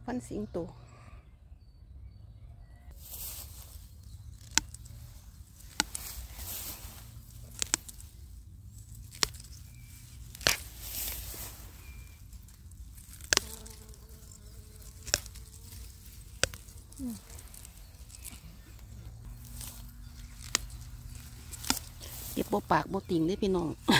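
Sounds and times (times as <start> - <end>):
plant stems snapping: 3.0 - 23.9.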